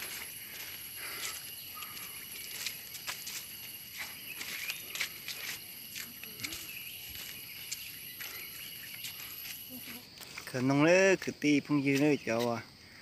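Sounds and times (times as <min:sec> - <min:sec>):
high-pitched insect drone: 0:00.0 - 0:10.2
footsteps crunching on dry leaves: 0:00.0 - 0:10.7.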